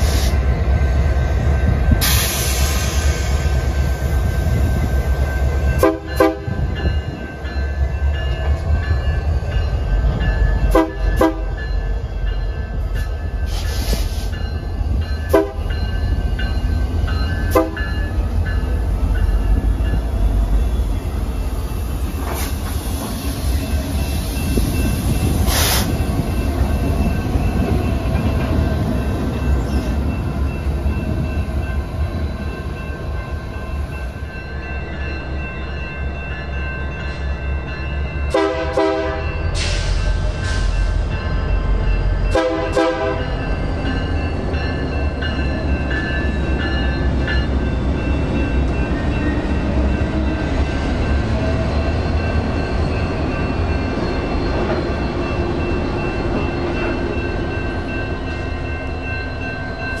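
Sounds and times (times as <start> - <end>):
crossing bells ringing: 0.0 - 60.0
diesel locomotive engine rumble: 0.0 - 60.0
train horn blasts: 5.8 - 6.7, 10.7 - 11.6, 15.3 - 15.7, 17.5 - 18.0, 38.3 - 39.4, 42.3 - 43.3.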